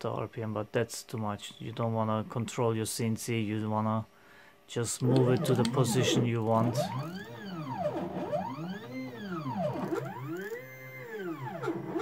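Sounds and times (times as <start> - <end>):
stepper motors whining: 5.0 - 12.0.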